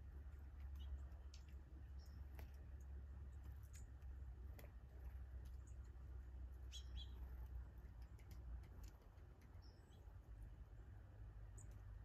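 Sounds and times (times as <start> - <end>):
low steady rumble: 0.0 - 12.0
small birds chipping: 0.0 - 12.0.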